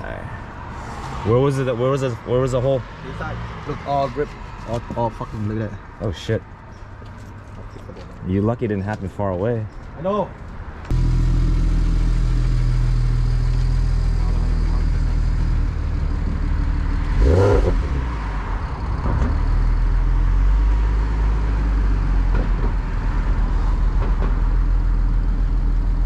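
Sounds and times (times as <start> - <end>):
car engine idling and revving: 10.4 - 26.0.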